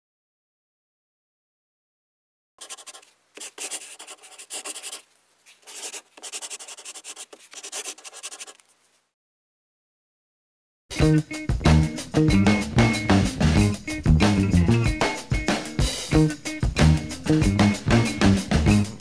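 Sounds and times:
pen nib scratching on paper: 2.6 - 8.6.

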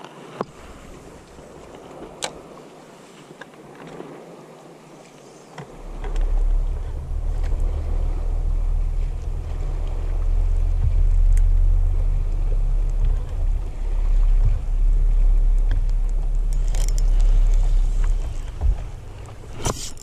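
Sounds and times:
wind buffeting microphone: 0.4 - 20.0.

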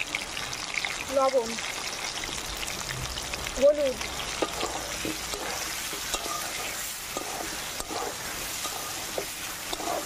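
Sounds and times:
potatoes sizzling in oil: 0.0 - 10.0
metal spatula scraping a pan: 4.3 - 10.0.

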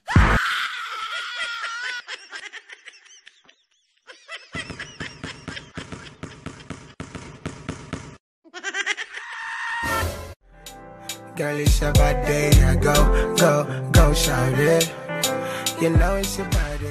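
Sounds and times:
woman screaming: 0.0 - 2.1, 9.1 - 10.0.

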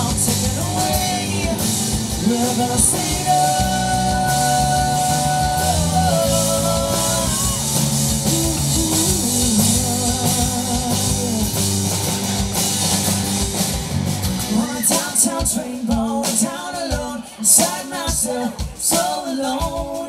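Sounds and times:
sustained bass line: 0.0 - 14.8
wavering lead guitar line: 0.0 - 17.8
live rock band playing: 0.0 - 20.0.

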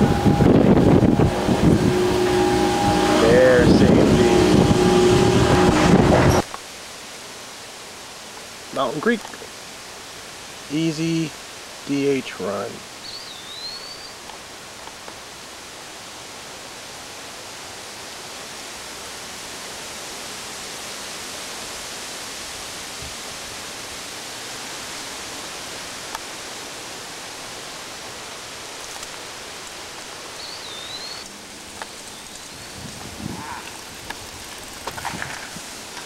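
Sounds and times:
bird whistling swooping note: 0.0 - 6.4, 30.4 - 31.3
woodland ambience hiss: 0.0 - 36.0.

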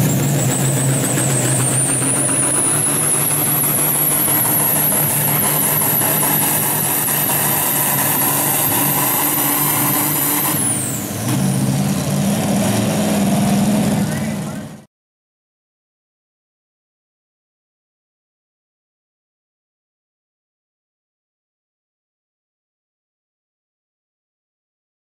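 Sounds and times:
high turbo whine: 0.0 - 14.9
tractor diesel engine under load: 0.0 - 14.9.

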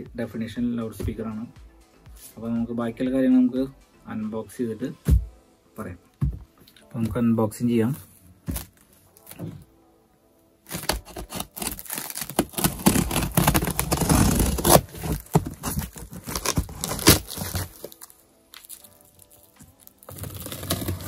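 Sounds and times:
cardboard scraping and crinkling: 10.7 - 21.0
tape tearing: 10.7 - 21.0.

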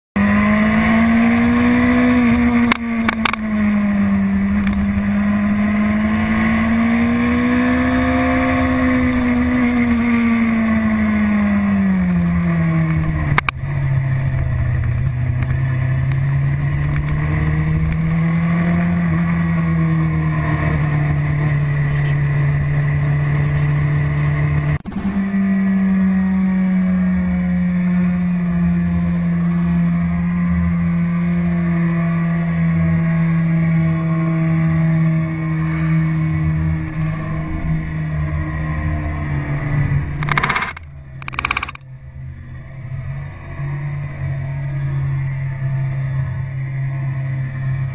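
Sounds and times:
motorcycle engine running: 0.2 - 47.9
click: 13.4 - 13.6.

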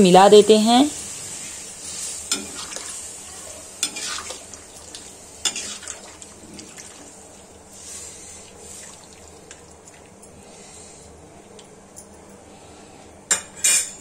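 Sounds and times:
liquid sloshing in a pan: 1.4 - 3.1, 3.8 - 10.2.

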